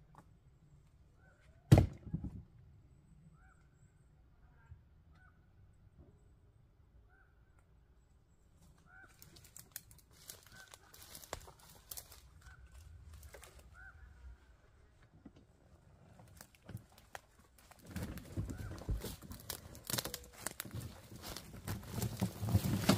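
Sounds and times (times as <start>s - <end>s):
faint bird calls: 1.1s - 1.7s, 3.1s - 5.8s, 7.0s - 8.0s, 8.6s - 15.2s
log thudding into wheelbarrow: 1.7s - 2.4s, 17.7s - 22.9s
footsteps crunching dry leaves: 9.0s - 13.9s, 16.4s - 22.9s.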